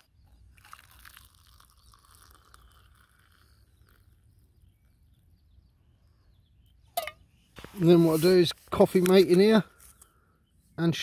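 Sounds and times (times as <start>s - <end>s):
water poured into mug: 0.4s - 4.5s.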